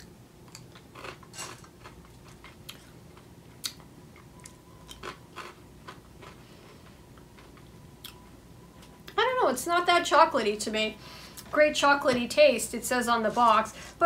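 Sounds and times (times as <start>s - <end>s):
cereal crunching: 0.5s - 2.9s.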